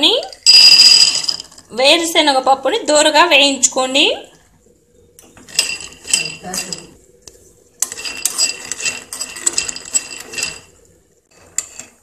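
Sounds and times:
metal spoon clinking: 5.5 - 7.0
peanuts rattling in a pan: 7.8 - 10.7.

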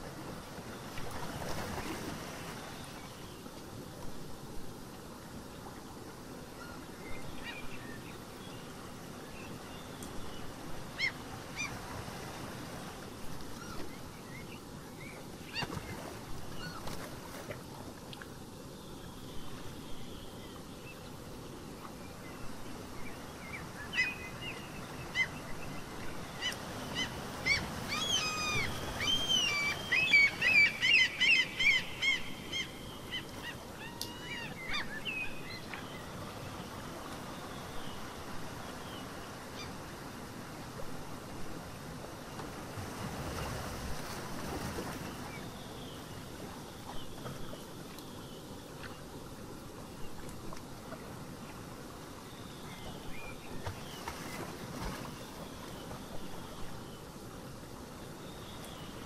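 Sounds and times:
ocean surf: 10.5 - 13.8, 22.8 - 46.6
birds calling: 23.6 - 36.1.

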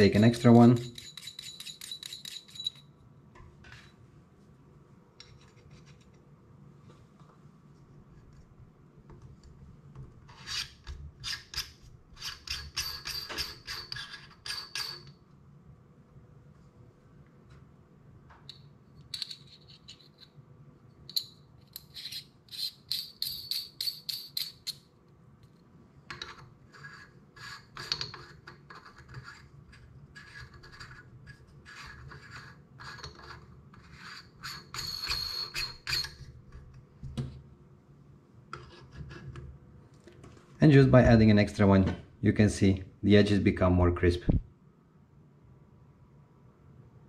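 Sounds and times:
adapter rubbing and scraping: 10.3 - 14.6.

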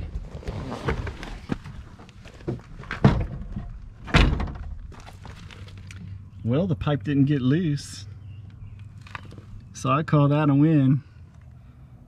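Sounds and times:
knocks and thunks: 2.4 - 5.0.

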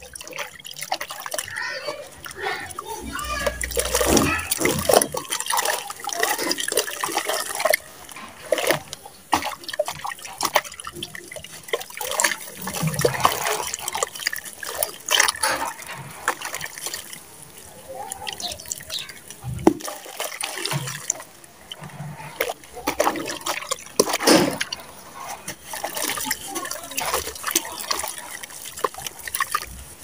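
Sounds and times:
mud splashing into water: 0.0 - 30.0.

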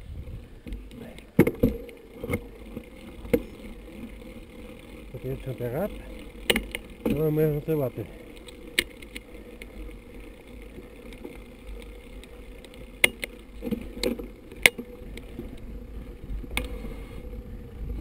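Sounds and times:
wind on camera: 0.0 - 2.4, 15.0 - 18.0
bike knocking and rattling: 0.0 - 18.0
bike tyres rumbling: 0.0 - 18.0.

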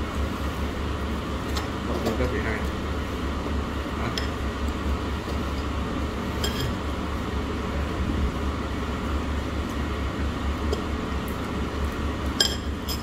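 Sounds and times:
restaurant background rumble: 0.0 - 13.0
tableware clinking: 6.4 - 6.8, 12.4 - 13.0.

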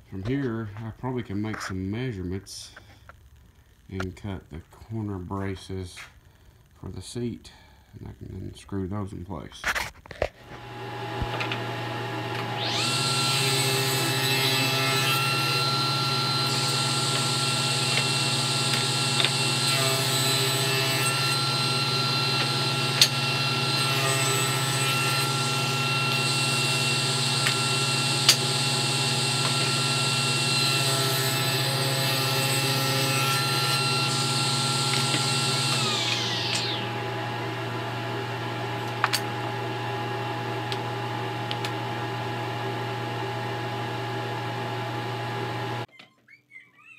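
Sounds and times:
steady machine hum: 10.4 - 45.9
table saw cutting: 10.4 - 45.9.

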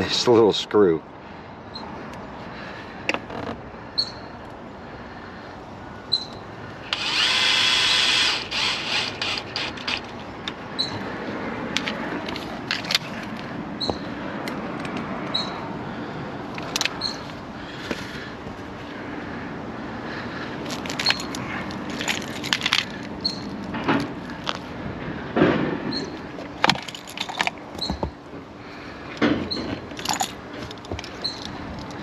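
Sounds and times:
cordless drill driving screw: 6.9 - 10.1
clicks and clatter of handling: 11.7 - 13.5, 16.5 - 17.0, 20.6 - 24.7, 25.4 - 28.2, 29.1 - 32.0.

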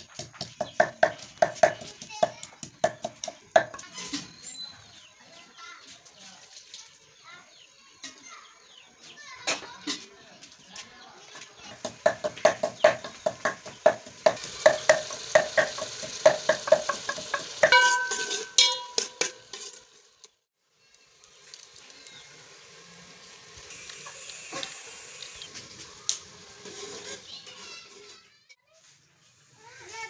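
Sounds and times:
wooden pestle knocking in mortar: 0.0 - 3.8
onions sizzling in a pot: 11.7 - 30.0
ringing metallic clang: 17.7 - 19.4.

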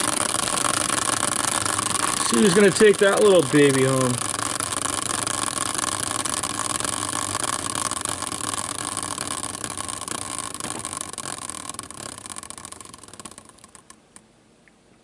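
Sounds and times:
prize wheel pointer clicking: 0.0 - 14.2.

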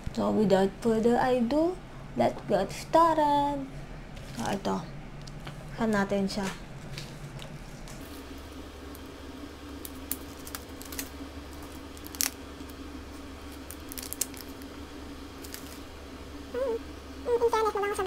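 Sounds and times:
steady low hum: 0.0 - 18.0
plastic sachet crinkling: 9.8 - 12.8, 13.4 - 14.8, 15.4 - 15.9.

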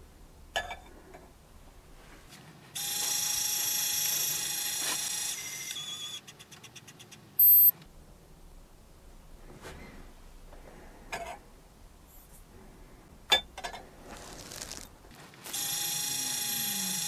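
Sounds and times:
short loud beep: 7.4 - 7.7.

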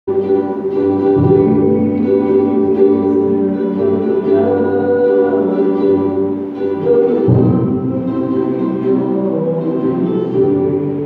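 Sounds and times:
strummed ukulele: 0.1 - 11.0
man singing: 1.2 - 11.0.

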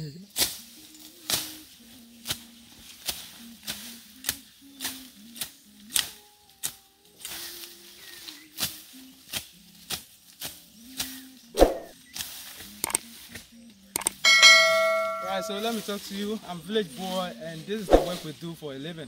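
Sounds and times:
rustle of cut foliage: 0.3 - 13.9, 15.1 - 19.0
machete slashing grass: 8.7 - 12.4, 17.9 - 18.3.

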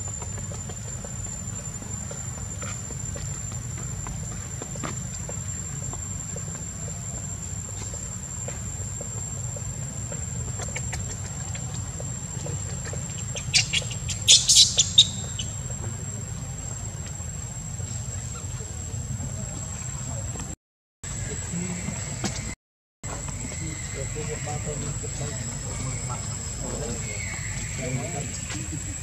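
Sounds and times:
high insect buzz: 13.1 - 16.9
sharp high-pitched squeaks: 13.2 - 15.6.

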